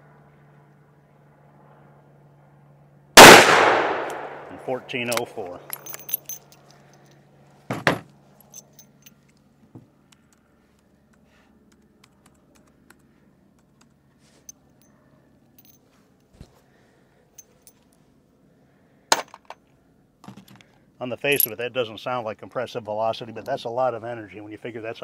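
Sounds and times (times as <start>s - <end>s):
light metallic clicks and clinks: 4.9s - 7.3s, 8.4s - 9.5s, 11.1s - 16.3s, 17.3s - 18.0s, 21.3s - 21.6s.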